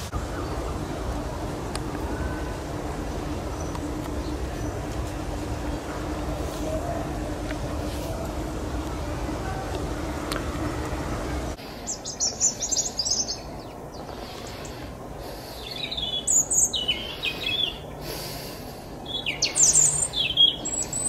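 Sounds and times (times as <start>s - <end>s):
robin singing: 1.9s - 4.9s, 11.3s - 21.0s.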